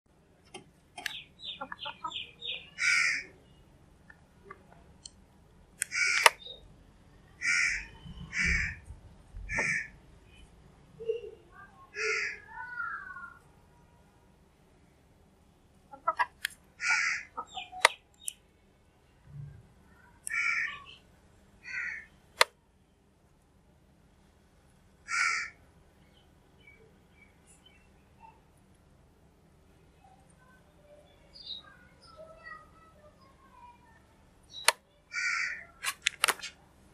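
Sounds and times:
crows cawing: 1.6s - 3.4s, 5.8s - 6.5s, 7.4s - 8.9s, 9.5s - 10.0s, 12.0s - 13.4s, 16.8s - 17.7s, 20.3s - 21.0s, 21.6s - 22.1s, 25.0s - 25.6s, 35.1s - 35.8s
sharp click: 35.8s - 36.5s.

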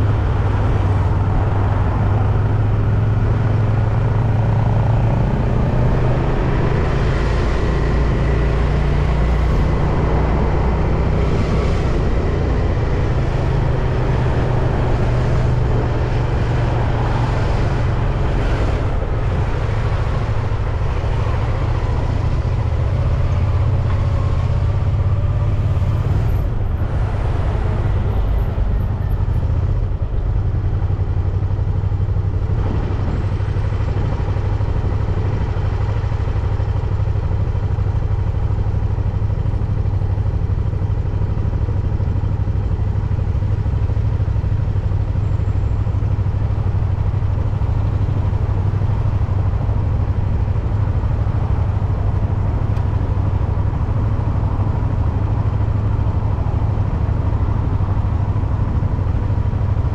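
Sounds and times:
wind rumbling on microphone: 0.0s - 36.9s
motor traffic passing: 0.0s - 37.0s.

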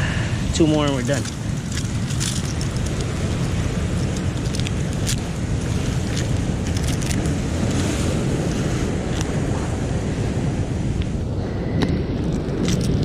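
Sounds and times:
surf: 0.0s - 12.1s
wind on microphone: 0.0s - 13.0s
mussel shells clacking: 0.6s - 7.8s.

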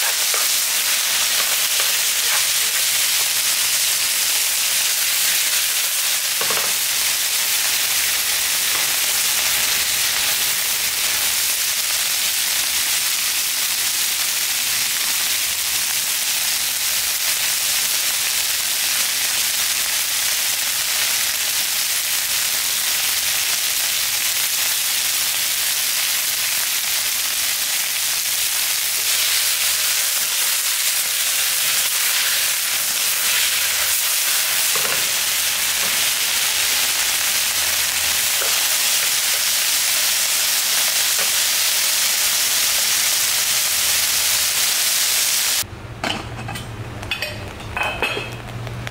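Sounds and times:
beef sizzling in oil: 0.0s - 45.6s.

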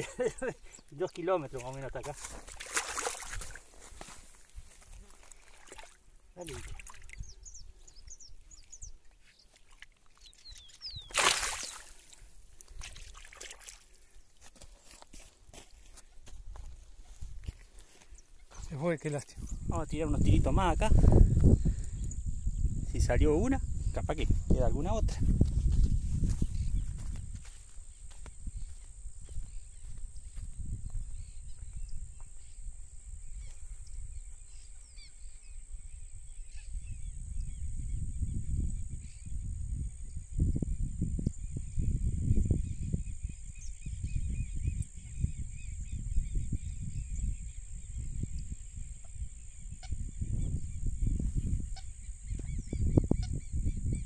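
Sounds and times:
birds chirping: 0.0s - 2.5s, 4.8s - 12.4s, 15.8s - 25.1s, 26.2s - 54.0s
water trickling and sloshing: 0.7s - 7.3s, 8.0s - 15.0s
wind rumbling on microphone: 1.6s - 5.2s, 6.5s - 9.0s, 16.2s - 54.0s
fish tail splash in water: 2.5s - 3.6s, 11.0s - 13.9s
thin high chirps: 10.2s - 12.2s.

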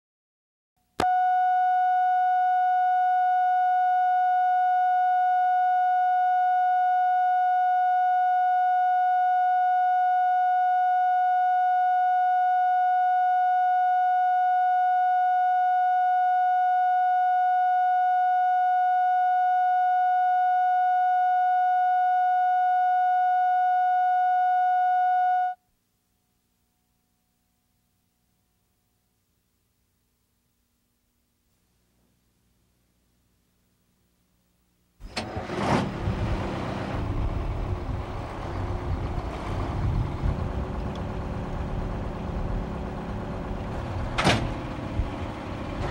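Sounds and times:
steady test tone: 1.0s - 25.6s.

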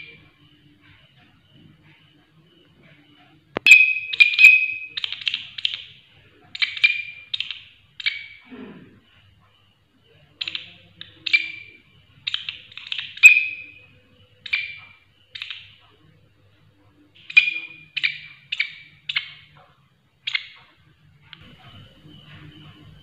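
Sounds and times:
katydid chirping: 3.6s - 8.4s, 10.4s - 15.8s, 17.2s - 19.6s, 20.2s - 20.7s.

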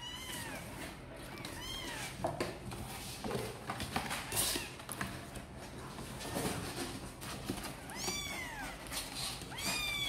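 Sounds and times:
kitten meowing: 9.5s - 10.0s.

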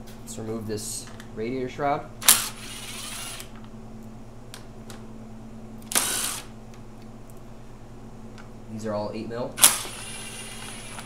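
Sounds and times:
impact driver running: 2.2s - 3.6s, 5.9s - 6.5s, 9.6s - 11.0s.

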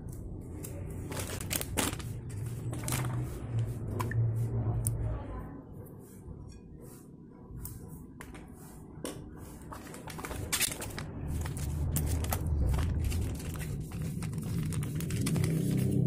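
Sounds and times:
low rumble: 0.1s - 6.6s, 10.8s - 16.0s
plastic sachet crinkling: 0.6s - 2.2s, 9.7s - 16.0s.

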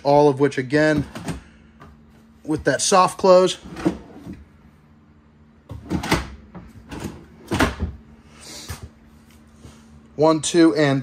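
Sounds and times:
drawers sliding and closing: 3.6s - 4.5s, 5.7s - 8.0s.

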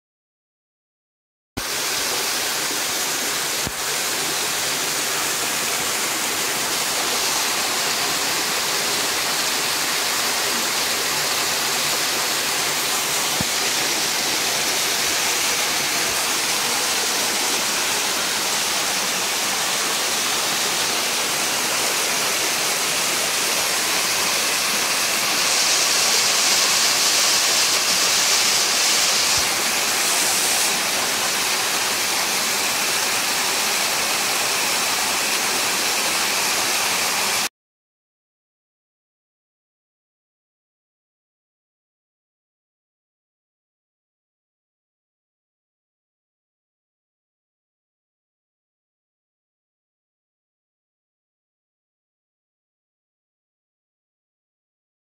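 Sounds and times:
waterfall rushing: 1.6s - 37.5s.

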